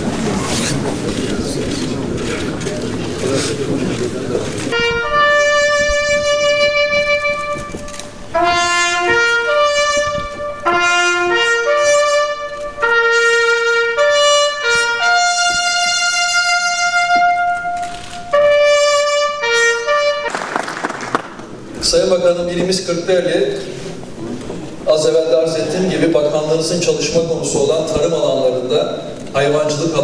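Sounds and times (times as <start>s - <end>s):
slow brass anthem: 4.6s - 21.7s.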